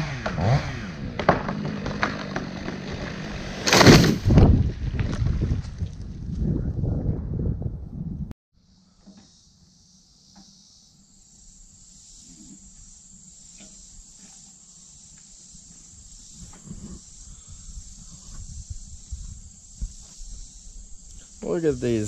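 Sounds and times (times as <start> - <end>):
high-pitched insect chirring: 8.6 - 22.0.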